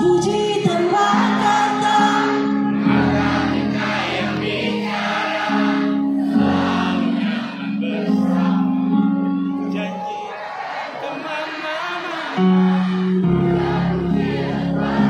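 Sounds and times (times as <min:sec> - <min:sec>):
live band playing a pop ballad: 0:00.0 - 0:04.6.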